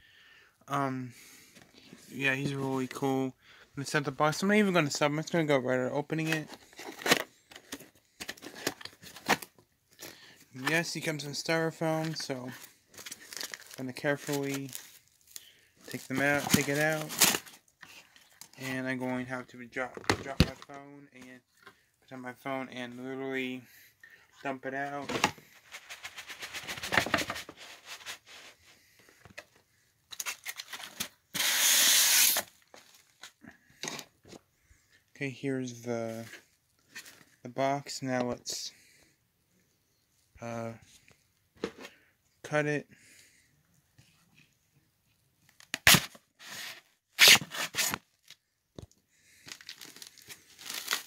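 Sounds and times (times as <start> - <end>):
styrofoam rustling and creaking: 6.2 - 18.9, 49.3 - 51.0
packaging ripping: 13.0 - 17.6, 30.1 - 32.6, 45.7 - 48.0, 49.4 - 51.0
styrofoam scraping rush: 25.5 - 28.7, 31.4 - 32.5.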